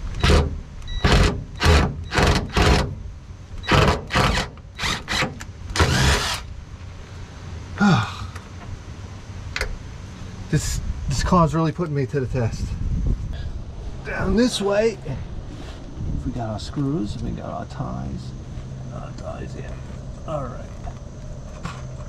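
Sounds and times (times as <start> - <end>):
power drill bursts: 0.2 - 3.0, 3.6 - 6.5.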